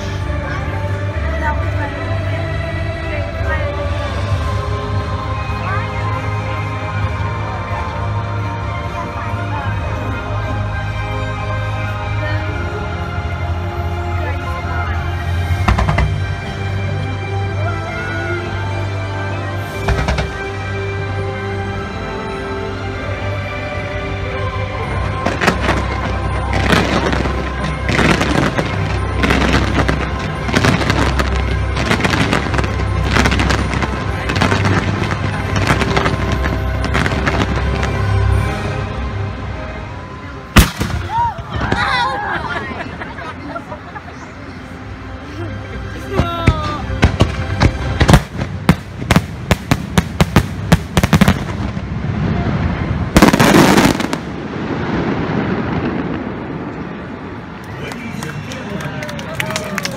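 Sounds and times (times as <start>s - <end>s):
fireworks booming and crackling: 15.2s - 16.6s, 19.6s - 20.7s, 25.0s - 38.5s, 40.6s - 41.8s, 46.0s - 57.7s
firework bangs: 19.8s - 20.4s, 40.6s - 41.8s, 46.4s - 57.4s.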